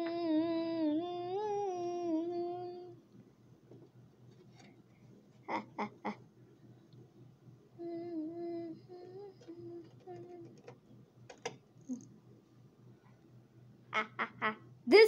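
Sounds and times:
person humming: 0.0 - 3.0, 7.8 - 10.6
light clicks and taps: 9.4 - 11.6.

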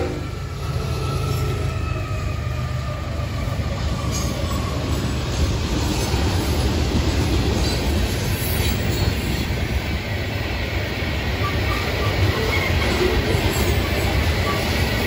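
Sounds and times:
train horn: 0.0 - 2.5
freight train rumbling by: 0.0 - 15.0.

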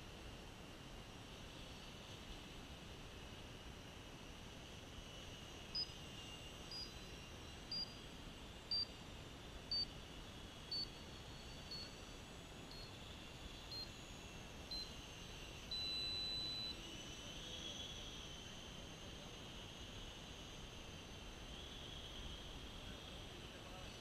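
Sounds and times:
model airplanes whining: 10.0 - 24.0.

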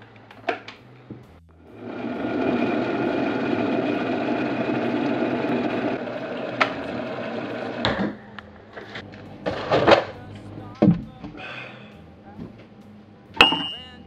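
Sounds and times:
electric kettle heating water: 1.6 - 8.2.

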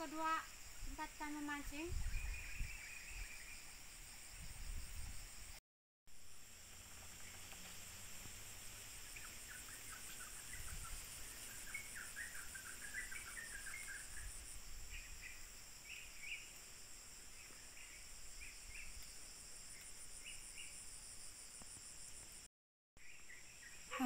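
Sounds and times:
pulsing insect chorus: 0.0 - 24.0
bird chirps: 9.0 - 16.5.

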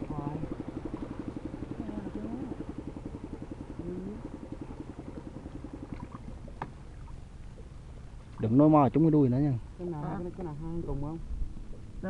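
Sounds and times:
small engine pulsing: 0.0 - 8.1.

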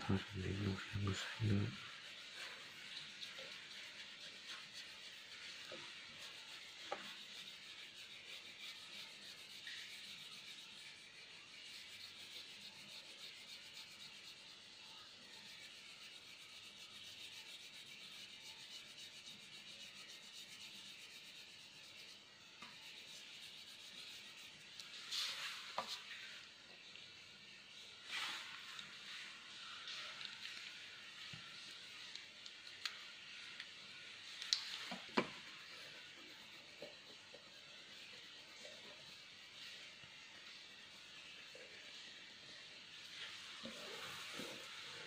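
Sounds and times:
crayon scratching on paper: 0.0 - 26.2.

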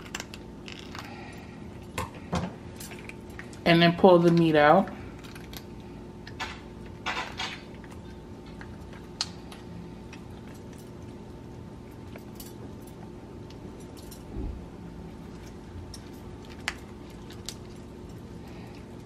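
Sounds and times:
lobster shell crackling: 0.0 - 12.3
low steady hum: 0.0 - 19.0.

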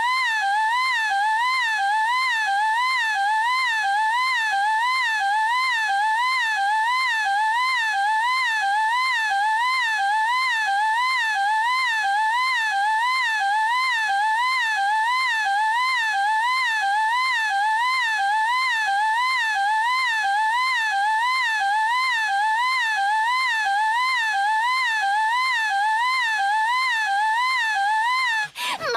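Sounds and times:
girl shrieking: 28.6 - 28.9.

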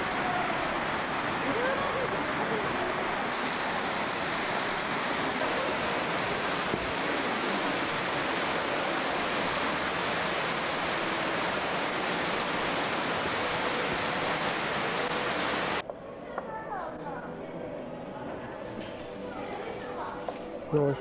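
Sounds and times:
waterfall over rocks: 0.0 - 15.8.

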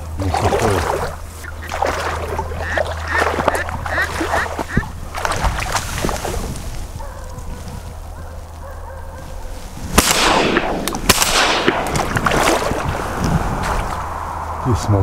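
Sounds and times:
shotgun shots with echo: 9.9 - 12.4.

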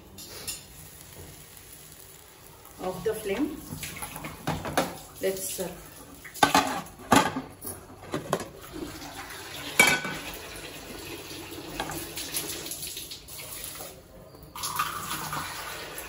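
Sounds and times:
frying pan and plate clattering: 3.8 - 5.0, 6.4 - 8.6, 9.7 - 10.3.

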